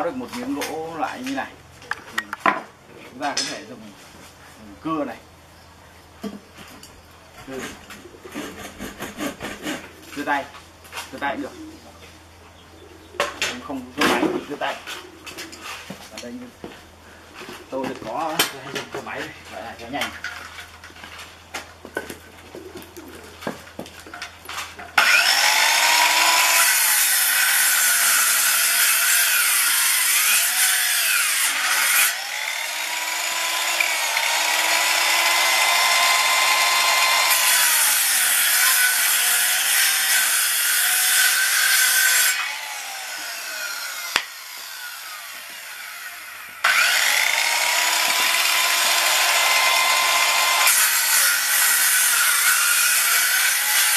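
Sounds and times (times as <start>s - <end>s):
circular saw cutting wood: 7.5s - 10.3s, 25.0s - 53.9s.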